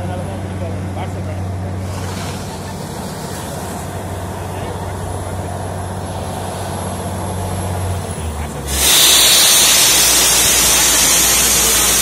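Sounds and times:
low engine hum: 0:00.0 - 0:08.8
loud rushing hiss: 0:01.8 - 0:12.0.

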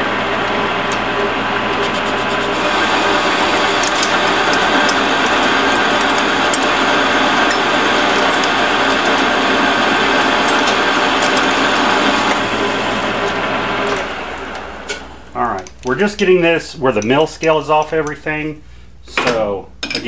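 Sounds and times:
metal lathe cutting steel: 0:00.0 - 0:15.1.

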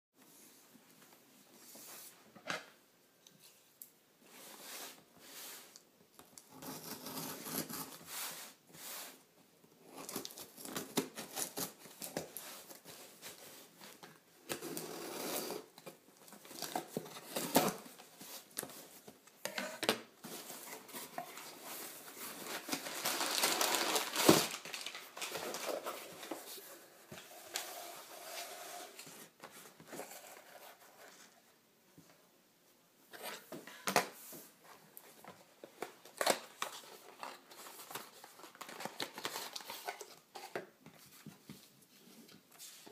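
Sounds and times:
packing paper rustling: 0:20.2 - 0:27.7, 0:35.2 - 0:40.6.

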